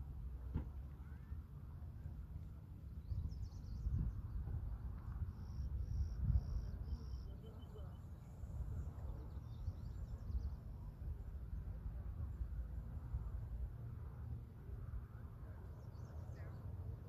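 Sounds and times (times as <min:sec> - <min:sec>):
bird chirps: 0:05.4 - 0:08.3.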